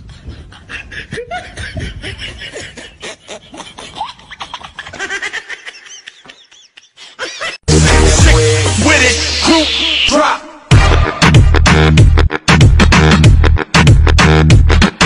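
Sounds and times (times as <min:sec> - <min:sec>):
people laughing: 0:00.4 - 0:07.7.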